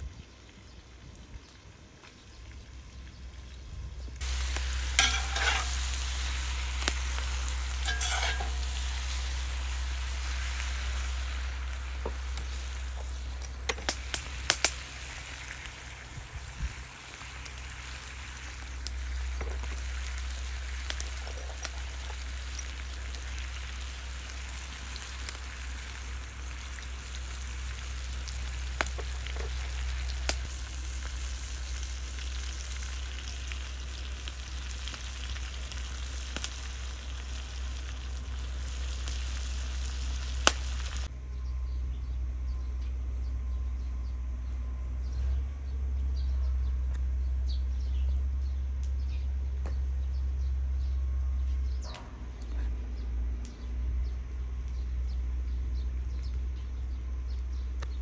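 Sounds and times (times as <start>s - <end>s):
meat and onion sizzling: 4.2s - 41.1s.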